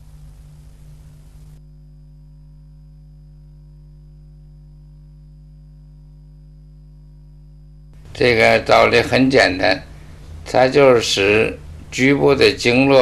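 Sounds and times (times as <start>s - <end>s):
faint hiss: 0.0s - 1.6s, 8.0s - 13.0s
low electrical hum: 0.0s - 13.0s.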